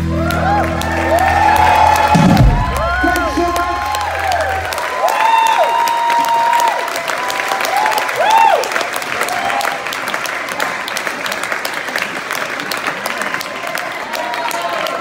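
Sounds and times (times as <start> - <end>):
audience whooping: 0.0 - 10.1, 13.1 - 15.0
audience clapping: 0.0 - 15.0.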